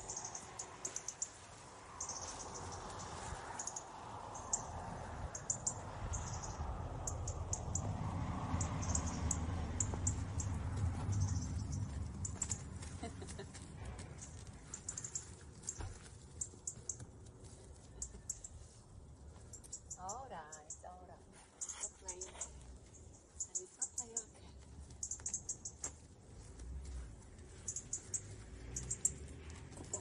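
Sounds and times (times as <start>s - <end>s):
high chirps and clicks: 5.3s - 7.9s, 8.6s - 12.7s, 14.2s - 17.1s, 24.9s - 26.0s, 27.6s - 30.0s.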